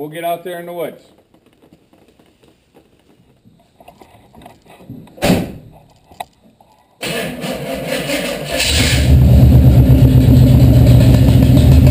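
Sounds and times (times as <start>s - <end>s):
truck door slamming: 5.2s - 5.7s
pickup engine starting and running: 7.0s - 11.9s.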